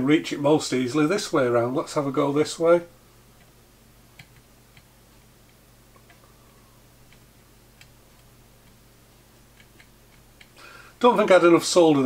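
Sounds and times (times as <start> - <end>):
small ticks of soldering: 9.5 - 10.6.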